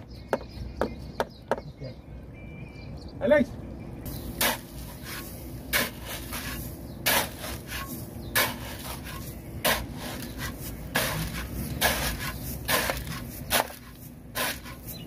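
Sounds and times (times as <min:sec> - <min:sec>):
shovel scraping gravel: 0:04.1 - 0:15.0.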